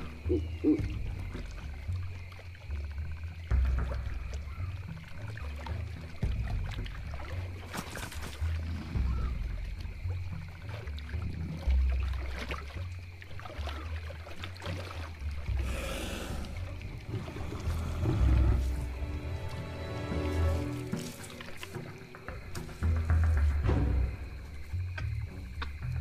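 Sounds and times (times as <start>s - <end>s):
water splashing and sloshing: 0.0s - 26.0s
low rumbling: 15.4s - 21.0s.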